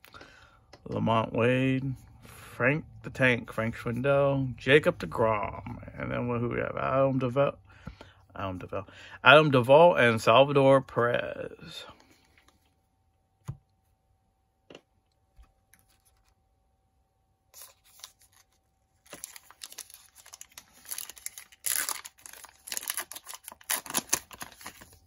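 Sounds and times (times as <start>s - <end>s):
foil wrapper tearing and crinkling: 17.6s - 25.0s.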